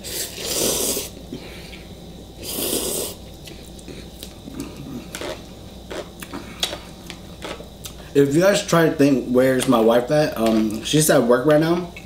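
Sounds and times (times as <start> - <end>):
person slurping noodles: 0.0 - 1.1, 2.4 - 3.2
quiet eating sounds: 0.0 - 8.2.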